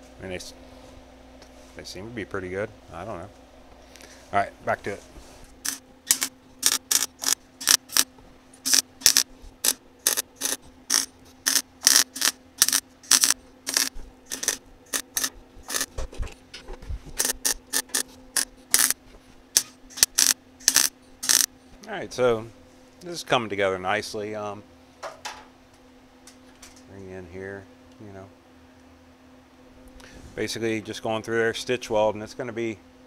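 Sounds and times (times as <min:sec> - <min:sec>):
welder machine hum: 0:04.9 - 0:21.5
welding arc bursts: 0:05.6 - 0:15.9, 0:17.2 - 0:19.0, 0:19.6 - 0:21.5.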